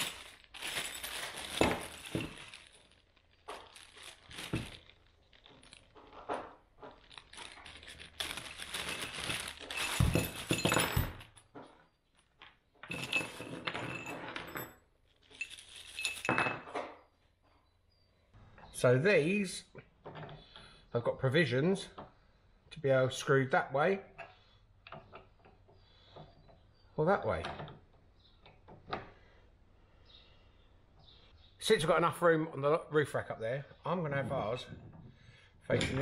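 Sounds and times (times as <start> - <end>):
plastic bags crinkling: 0.0 - 11.4, 15.1 - 16.4
metal bolts clinking: 9.0 - 11.5, 12.8 - 14.7, 35.7 - 36.0.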